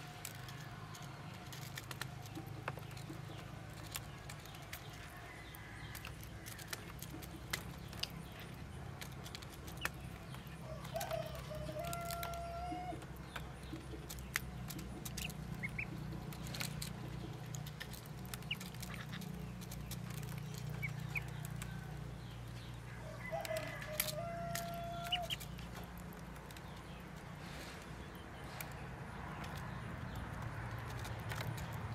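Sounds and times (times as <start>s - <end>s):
bills pecking at dish: 0.0s - 31.9s
duckling peeps: 14.7s - 16.1s.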